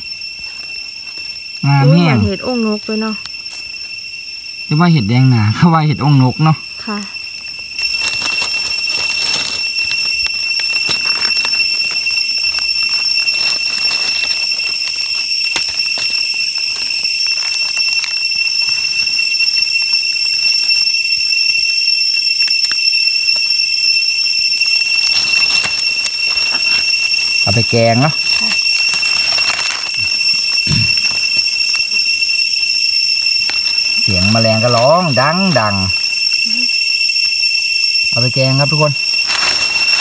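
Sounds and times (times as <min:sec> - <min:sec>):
footsteps in dry leaves: 0:00.0 - 0:01.4, 0:07.5 - 0:21.3, 0:24.5 - 0:32.2, 0:33.2 - 0:35.3, 0:39.0 - 0:40.0
insect high-pitched call: 0:00.0 - 0:40.0.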